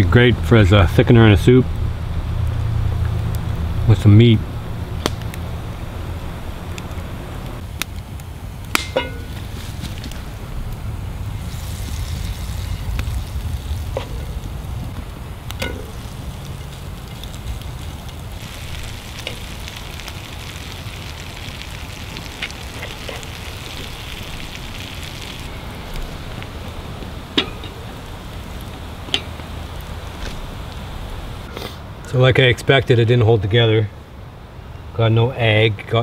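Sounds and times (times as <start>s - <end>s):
low rumble: 0.0s - 31.5s
cake sizzling in oil: 7.6s - 31.5s.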